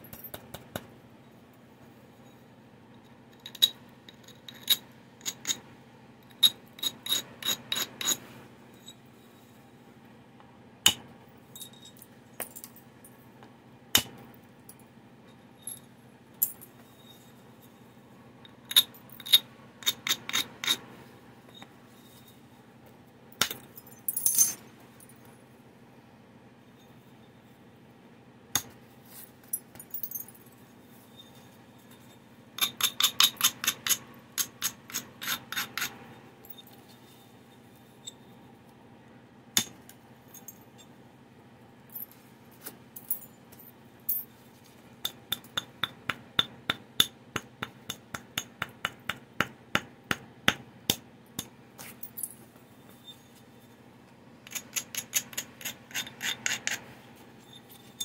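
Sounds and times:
stone scraping stone edge: 0:54.5 - 0:56.8.

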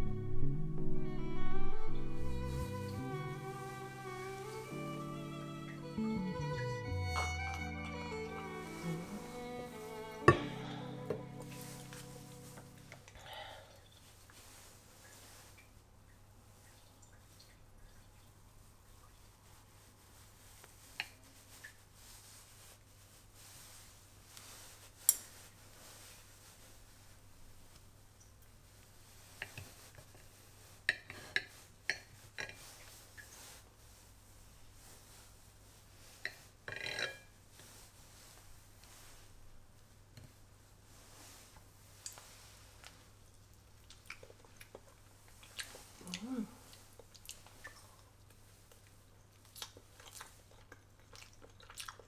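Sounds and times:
faint steady hum: 0:00.0 - 0:21.4
person humming mm: 0:09.9 - 0:13.7, 0:46.0 - 0:46.8
person chewing food: 0:43.7 - 0:52.0
wet mouth clicks: 0:47.0 - 0:48.0.

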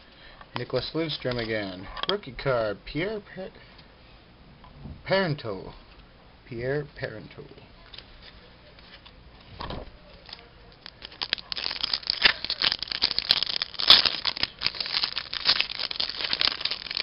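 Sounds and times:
foil wrapper crinkling and tearing: 0:10.2 - 0:17.0.

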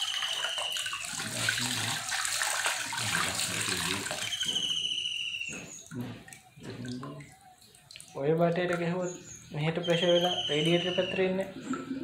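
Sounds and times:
water splashing into bucket: 0:00.0 - 0:04.9.

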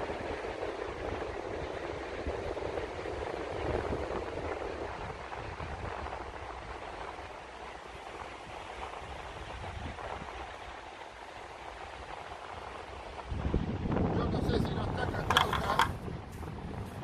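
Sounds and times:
waves breaking on beach: 0:00.0 - 0:17.0.

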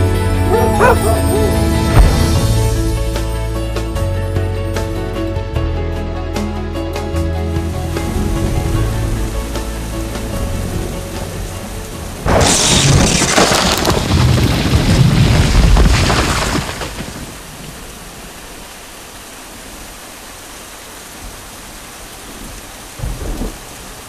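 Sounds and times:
steady rain: 0:07.0 - 0:24.0
thunder crack rumbling: 0:08.0 - 0:17.8.

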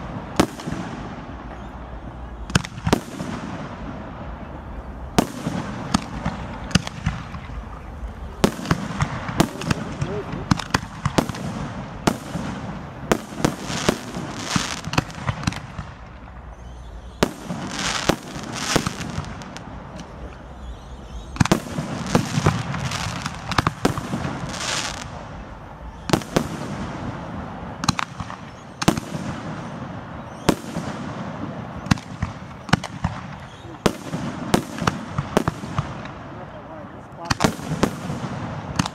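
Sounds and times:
firework crackling hiss: 0:00.0 - 0:36.5.

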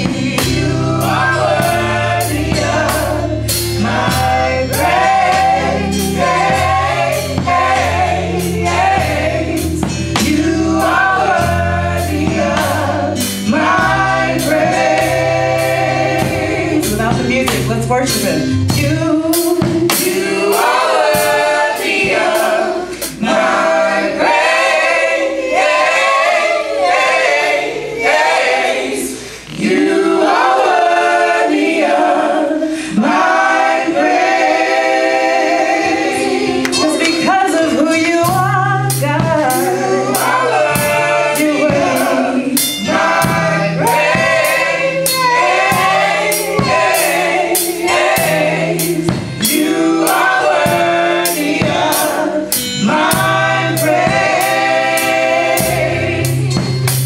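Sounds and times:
choir singing: 0:00.0 - 0:57.0
drum kit: 0:00.0 - 0:57.0.

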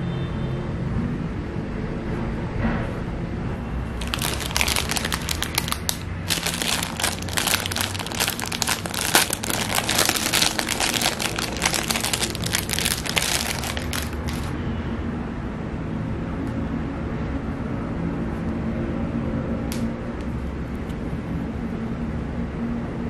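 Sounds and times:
low background hum: 0:03.4 - 0:14.6
plastic bag crinkling: 0:04.0 - 0:14.6.

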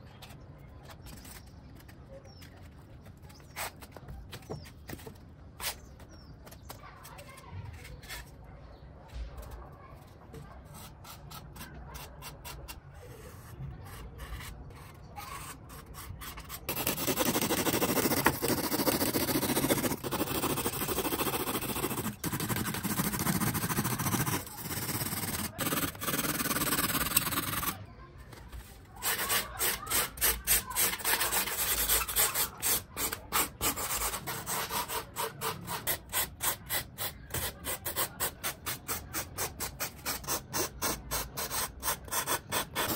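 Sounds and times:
sandpaper rubbing foam: 0:10.7 - 0:27.8, 0:28.6 - 0:42.9
blade cutting foam: 0:13.9 - 0:27.8, 0:29.0 - 0:42.9.

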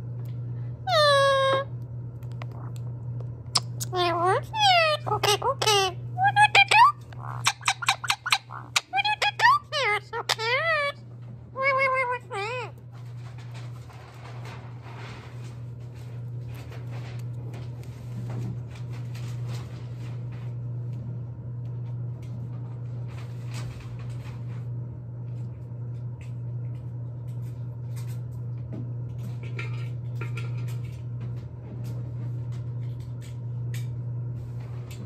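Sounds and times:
steady low hum: 0:00.0 - 0:35.0
squeaky pitched call: 0:00.9 - 0:01.7, 0:03.8 - 0:11.0, 0:11.6 - 0:12.7.

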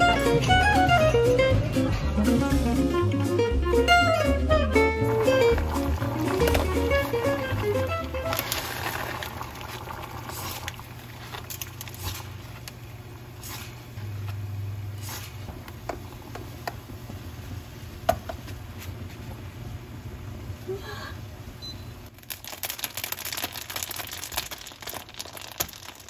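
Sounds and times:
steady low hum: 0:04.5 - 0:22.0.

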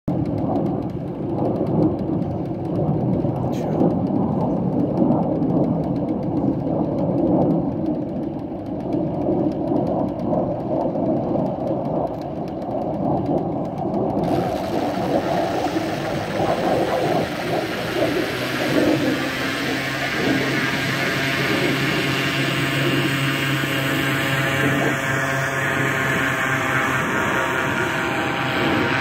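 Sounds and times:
paramotor engine running: 0:00.1 - 0:29.0
bright hiss: 0:14.3 - 0:24.6.

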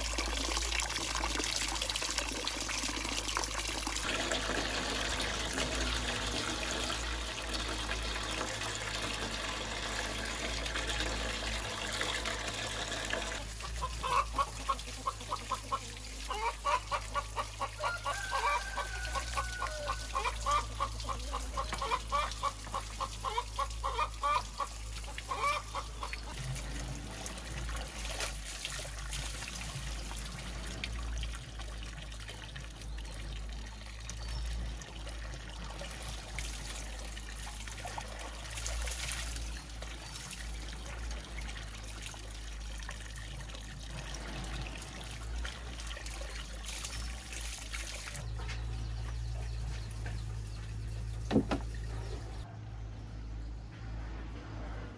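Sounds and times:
water splashing into metal basin: 0:00.0 - 0:50.2
chicken clucking: 0:13.6 - 0:24.7, 0:25.3 - 0:26.4.

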